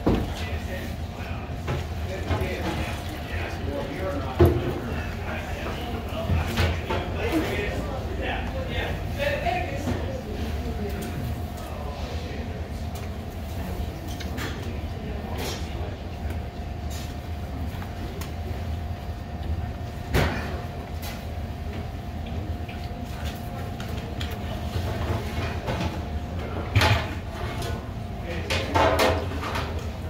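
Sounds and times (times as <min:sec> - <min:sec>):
clicks and knocks of eating: 0:21.8 - 0:26.1.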